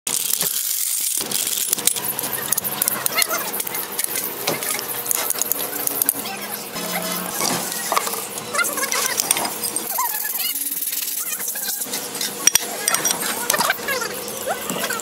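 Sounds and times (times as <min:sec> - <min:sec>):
wrench working wheel nuts: 0:06.8 - 0:15.0.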